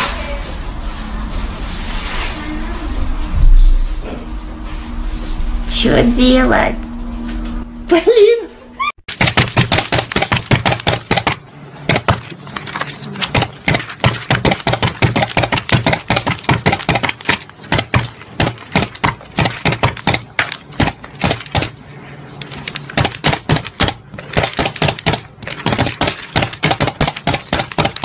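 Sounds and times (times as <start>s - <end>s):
rubber stamp slamming on paper: 9.1s - 21.8s, 22.6s - 28.0s.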